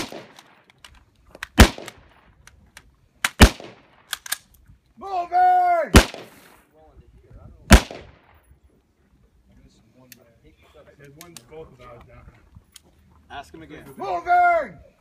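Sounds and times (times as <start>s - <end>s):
rifle shots: 0.0s - 0.6s, 1.5s - 2.3s, 3.2s - 4.4s, 5.9s - 6.4s, 7.7s - 8.3s
man shouting: 5.0s - 6.0s, 14.0s - 14.9s.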